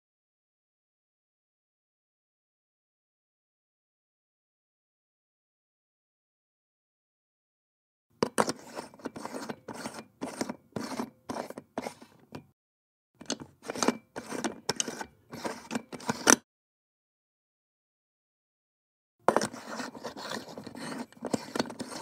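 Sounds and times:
light bulb scraping in socket: 0:13.2 - 0:16.4.

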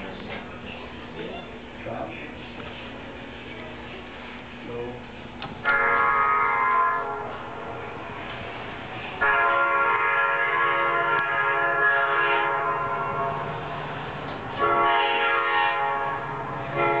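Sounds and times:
locomotive air horn blasts: 0:05.6 - 0:08.0, 0:09.2 - 0:13.9, 0:14.5 - 0:17.0.

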